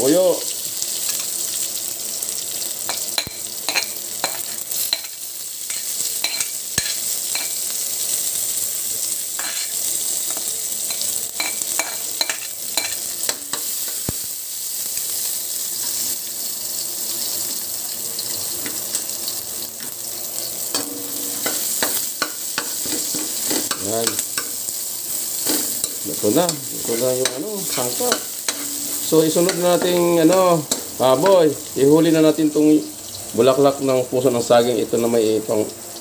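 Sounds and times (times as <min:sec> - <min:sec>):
food sizzling in hot oil: 0:00.0 - 0:36.0
spoon scraping wok: 0:02.9 - 0:07.7, 0:09.3 - 0:14.1, 0:18.2 - 0:31.5.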